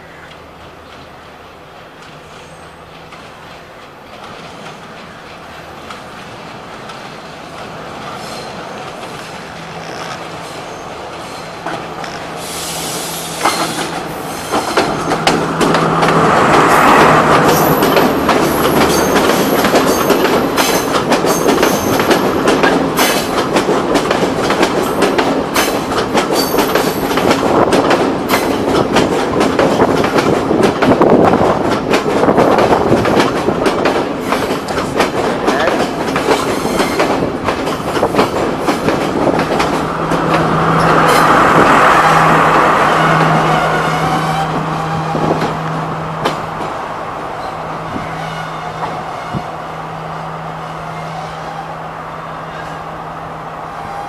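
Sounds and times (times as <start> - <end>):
train engine hum: 0.0 - 54.0
train wheels clattering over rail joints: 2.9 - 41.8.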